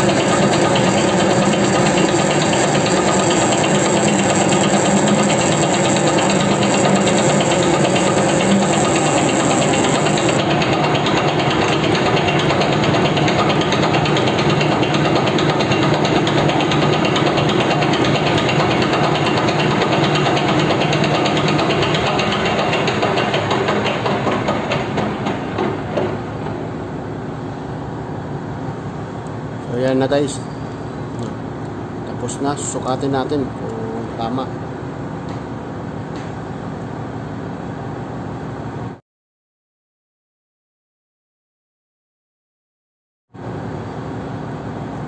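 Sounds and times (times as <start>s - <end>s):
lathe tool cutting metal: 0.0s - 24.7s
metal lathe humming: 0.0s - 24.8s.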